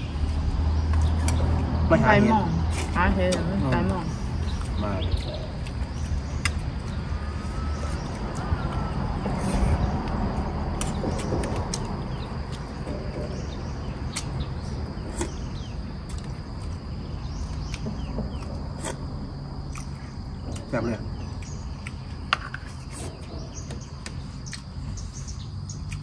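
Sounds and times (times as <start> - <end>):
low rumbling noise: 0.0 - 25.6
high insect drone: 0.0 - 26.0.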